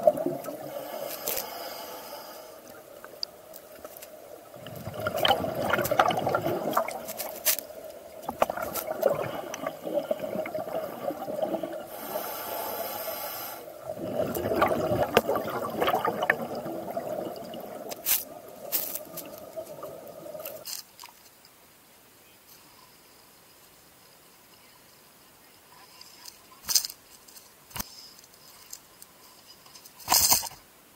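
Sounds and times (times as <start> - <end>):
exhaled bubbles gurgling underwater: 0.0 - 1.0, 4.4 - 7.2, 7.8 - 12.2, 13.7 - 20.6
regulator inhalation hiss: 0.6 - 2.7, 10.7 - 13.8.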